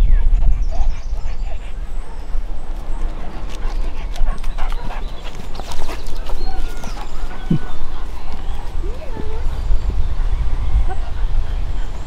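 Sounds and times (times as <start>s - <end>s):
dog clicks and scuffs: 2.8s - 7.5s.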